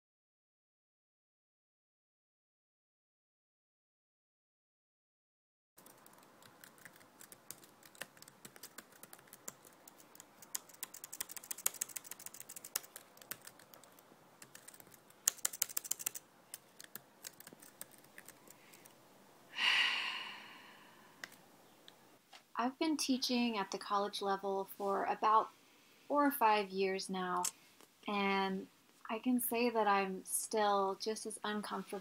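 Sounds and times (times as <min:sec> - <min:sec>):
breathy rush: 0:19.5 - 0:21.2.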